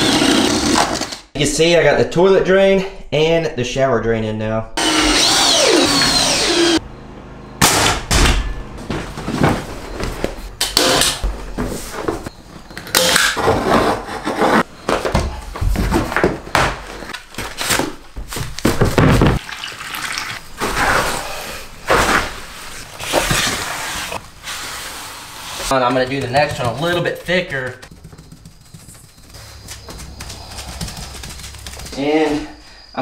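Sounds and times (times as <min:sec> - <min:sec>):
knocks and thuds: 0:18.1 - 0:19.4
trowel mixing mortar in plastic tub: 0:25.6 - 0:29.6.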